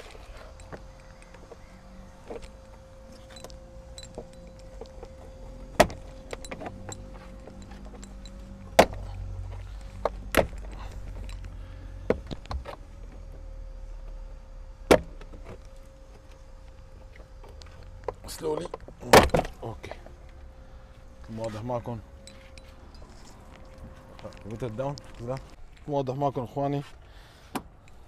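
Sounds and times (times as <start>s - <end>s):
faint steady hum: 0.0s - 28.0s
car trim clicks and knocks: 2.2s - 11.3s, 14.9s - 15.6s, 17.1s - 20.0s.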